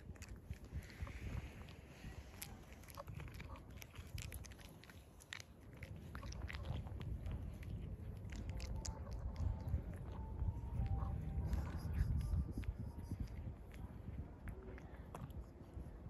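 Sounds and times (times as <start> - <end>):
cat crunching dry kibble: 0.0 - 16.0
low rumble: 5.8 - 16.0.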